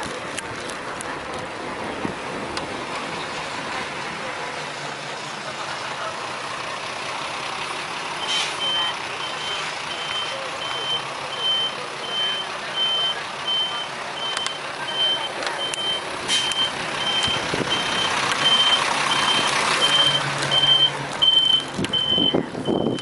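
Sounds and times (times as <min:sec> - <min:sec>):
diesel engine running: 0:00.0 - 0:23.0
truck reversing alarm beeping: 0:08.1 - 0:23.0.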